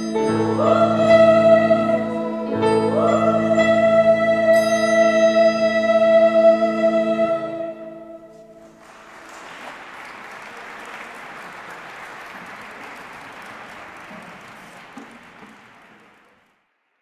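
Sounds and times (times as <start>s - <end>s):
applause: 8.6s - 16.7s.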